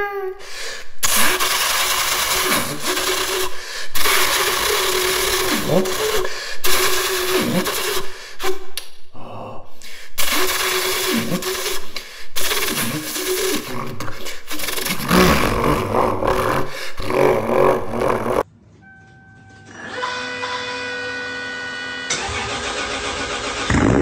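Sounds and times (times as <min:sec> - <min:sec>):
man imitating engine flyby: 0:04.4 - 0:06.3, 0:13.0 - 0:18.4.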